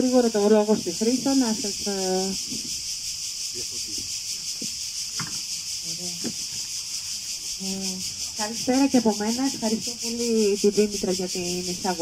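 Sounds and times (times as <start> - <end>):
insects chorus: 0.0 - 12.0
faint knocks: 4.0 - 5.4.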